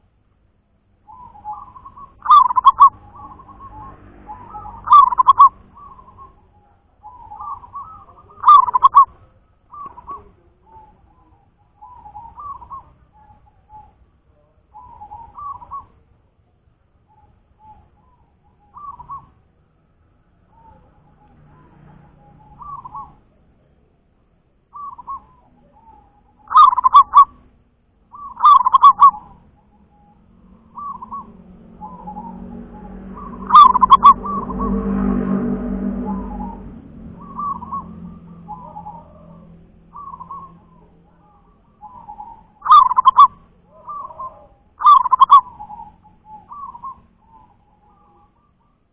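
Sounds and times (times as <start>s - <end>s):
dove cooing: 1.1s - 16.0s, 17.1s - 19.4s, 20.5s - 23.3s, 24.7s - 27.5s, 28.1s - 48.8s
low rumble: 29.3s - 42.6s.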